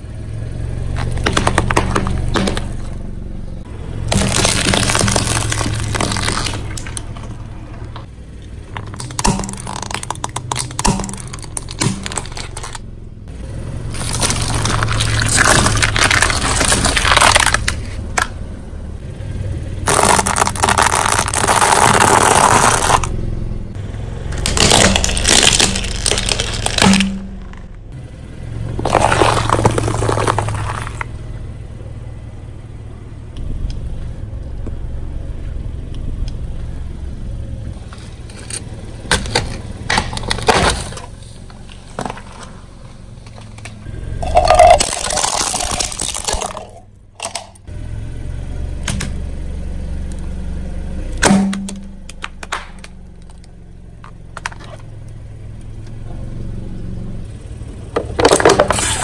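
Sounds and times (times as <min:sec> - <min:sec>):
steady low hum: 0:00.0 - 0:58.7
car tire crushing soft food: 0:00.8 - 0:03.1, 0:03.9 - 0:12.9, 0:13.8 - 0:18.4, 0:19.8 - 0:23.1, 0:24.2 - 0:27.9, 0:28.7 - 0:31.1, 0:37.8 - 0:47.7, 0:51.2 - 0:55.9, 0:57.9 - 0:59.0.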